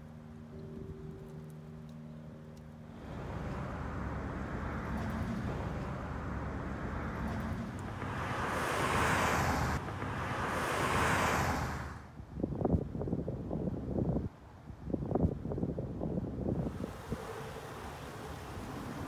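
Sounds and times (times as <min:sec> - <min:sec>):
vehicle passing hiss: 0:02.9 - 0:12.1, 0:16.6 - 0:19.0
wind rushing over microphone: 0:02.9 - 0:19.0.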